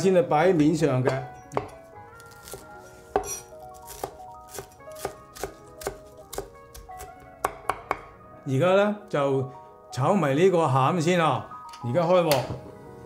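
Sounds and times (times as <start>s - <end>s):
soft background music: 0.0s - 13.0s
cleaver chopping on board: 2.5s - 8.1s.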